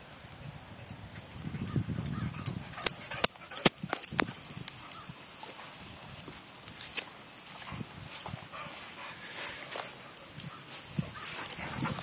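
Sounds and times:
footsteps on dry grass: 3.8s - 12.0s.

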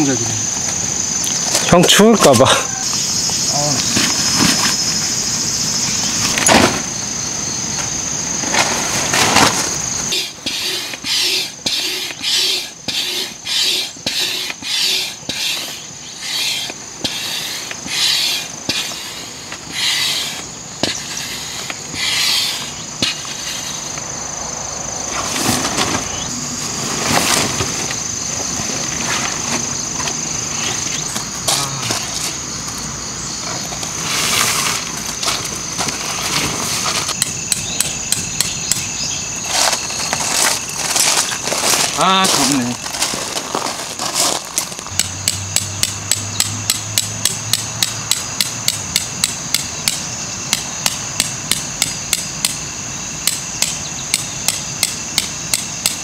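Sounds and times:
insects droning: 0.0s - 56.0s
noisy strokes: 8.5s - 32.4s.

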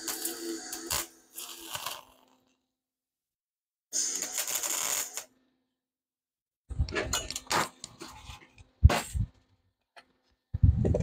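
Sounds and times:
welding arc crackling: 0.0s - 2.3s, 4.0s - 5.3s.

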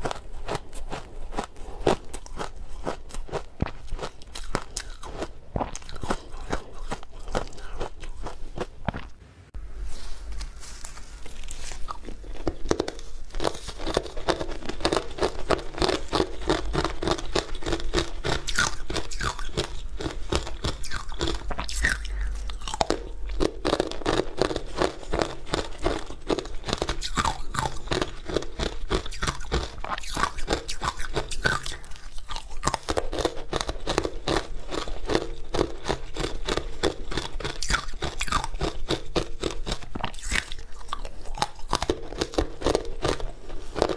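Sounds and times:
crunching and chewing ice: 0.0s - 9.2s, 10.0s - 43.9s.

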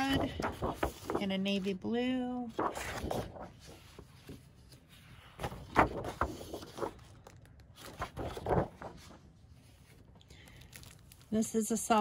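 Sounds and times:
paper flaps and taps: 0.0s - 1.2s, 5.4s - 9.2s
paper rustling and sliding: 0.0s - 1.6s, 2.5s - 11.3s.

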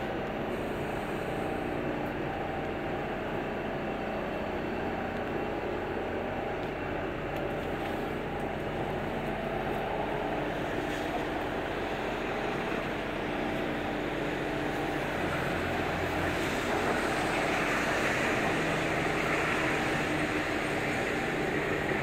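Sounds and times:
engine drone: 0.0s - 22.0s.

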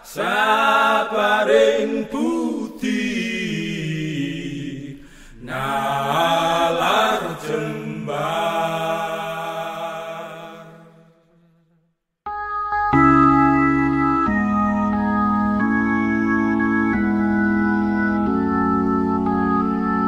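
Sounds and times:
person chanting: 0.0s - 11.5s.

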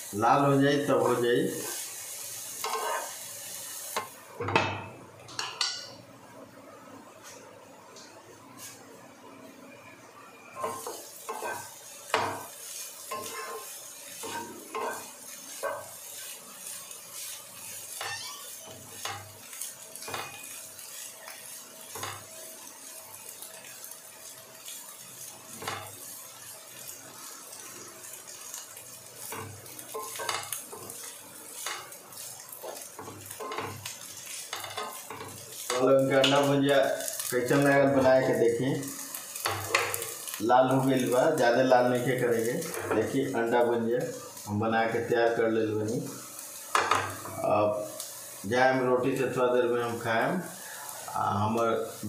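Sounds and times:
eggs sizzling in a frying pan: 0.0s - 52.0s
spatula scraping a pan: 2.5s - 3.2s, 10.6s - 19.3s, 29.2s - 35.8s.

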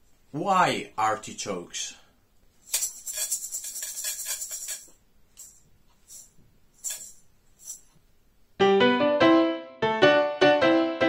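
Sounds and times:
jingling percussion rattle: 2.6s - 8.0s.

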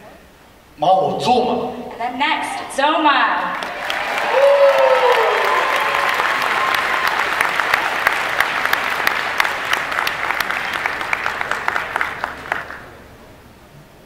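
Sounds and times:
large audience applauding: 3.4s - 13.1s.

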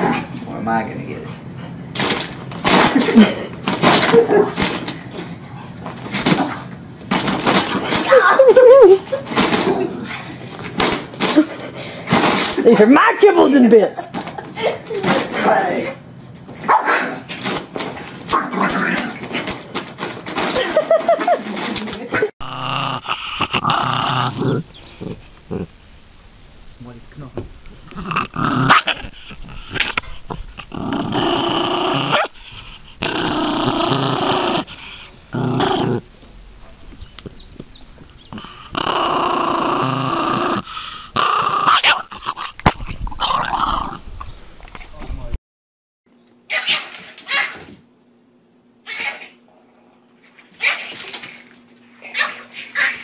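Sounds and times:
dog growling: 1.7s - 12.6s, 16.7s - 25.8s, 27.8s - 36.1s, 38.3s - 44.0s.

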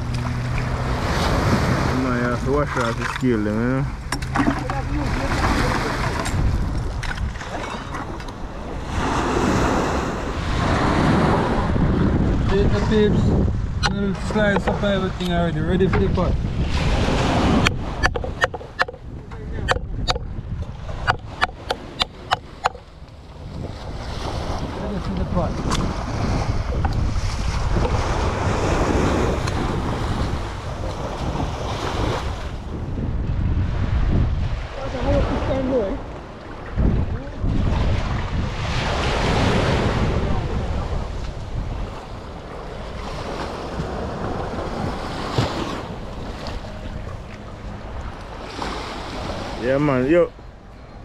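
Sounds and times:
sea waves washing in: 0.0s - 51.0s
wind buffeting microphone: 0.0s - 51.0s.

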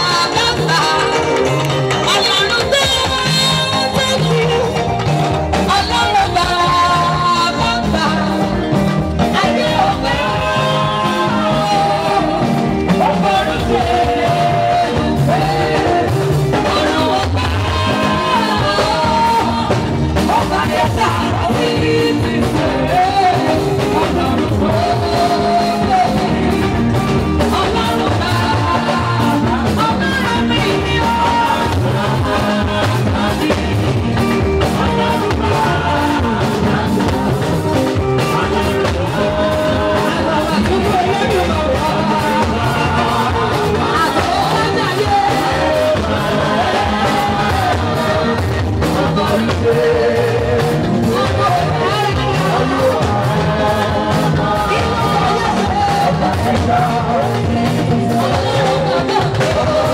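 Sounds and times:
band with drum kit: 0.0s - 59.9s
group of singers: 0.0s - 59.9s
woman singing lead: 0.0s - 59.9s.

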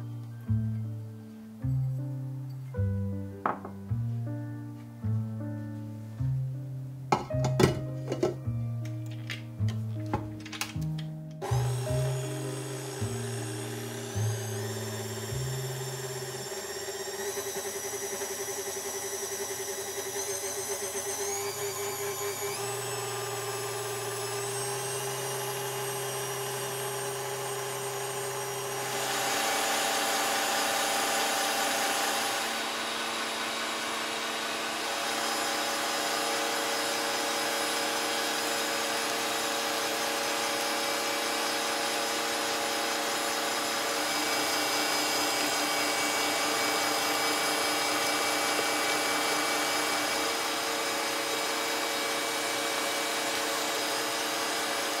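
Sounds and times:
kitchen appliance motor running: 11.4s - 55.0s.

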